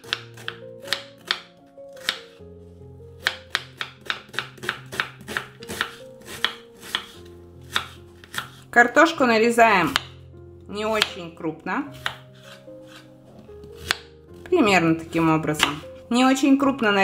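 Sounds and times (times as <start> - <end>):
knife chopping on wooden board: 0.0 - 2.4, 3.2 - 8.6, 9.9 - 10.1, 10.9 - 11.2, 12.0 - 15.8
soft background music: 0.0 - 17.0.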